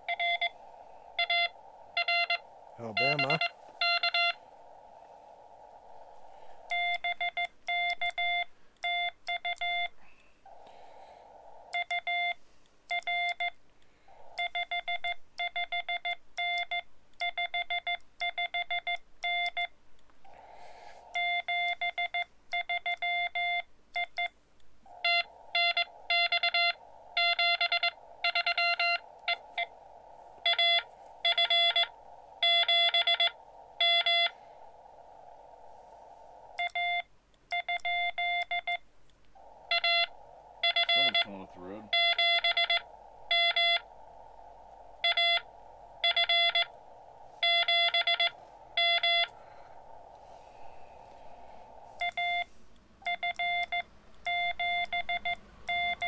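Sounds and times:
morse code beeps: 0.0 - 0.6, 1.2 - 4.4, 6.7 - 10.0, 11.7 - 13.6, 14.4 - 19.7, 21.1 - 24.3, 24.9 - 29.8, 30.4 - 34.4, 36.6 - 38.8, 39.4 - 44.0, 45.0 - 46.8, 47.4 - 49.4, 52.0 - 56.0
receiver hiss: 0.0 - 56.0.

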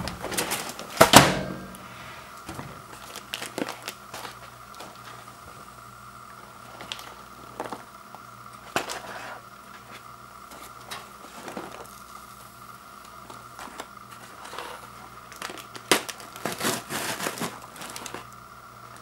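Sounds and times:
paper bag crinkling: 0.0 - 1.0, 2.5 - 5.3, 6.6 - 7.8, 13.5 - 18.3.

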